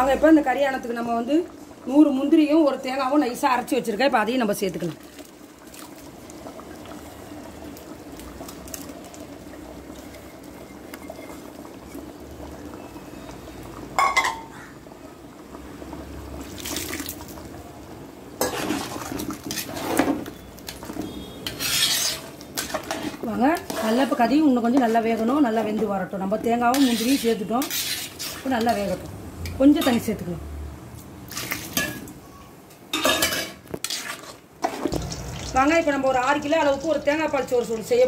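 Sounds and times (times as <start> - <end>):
metal spoon scraping a pot: 21.4 - 25.3, 26.7 - 28.9, 33.1 - 34.9.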